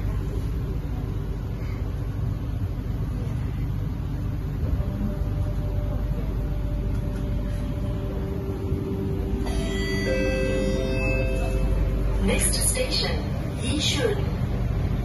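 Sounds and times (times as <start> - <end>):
metro train running rumble: 0.0 - 15.0
train motor whine: 4.5 - 15.0.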